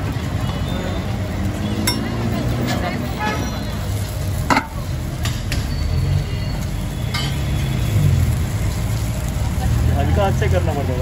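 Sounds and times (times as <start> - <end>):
light sizzling on griddle: 3.7 - 11.0.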